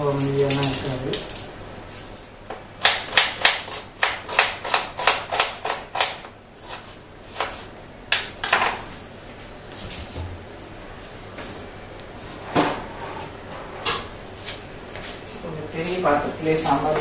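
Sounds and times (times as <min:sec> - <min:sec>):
knife chopping on cutting board: 0:02.8 - 0:07.6.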